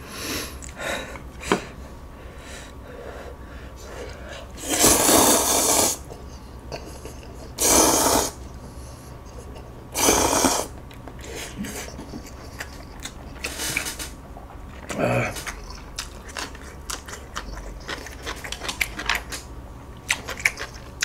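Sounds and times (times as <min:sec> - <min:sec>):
noodles slurped: 0:04.6 - 0:06.1, 0:07.6 - 0:08.4, 0:10.0 - 0:11.8, 0:12.5 - 0:19.5
chewing: 0:10.7 - 0:21.0.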